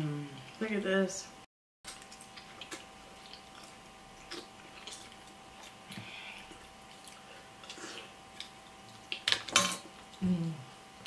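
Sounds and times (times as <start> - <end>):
faint steady hum: 0.0 - 11.0
person chewing: 1.9 - 9.3.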